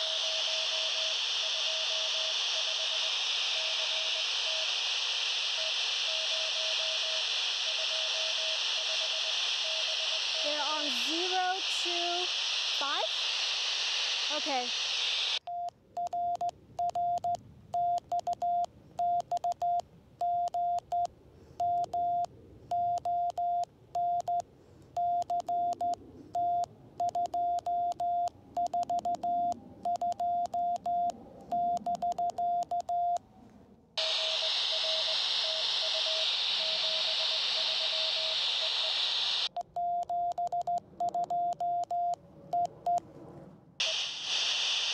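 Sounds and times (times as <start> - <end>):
faint fast morse signal: 0.0 - 13.3, 25.0 - 33.2, 34.0 - 43.0, 43.8 - 44.6
receiver hiss: 0.0 - 15.5, 34.0 - 39.6, 43.8 - 44.9
morse code beeps: 15.5 - 24.4, 25.0 - 33.2, 39.6 - 43.0.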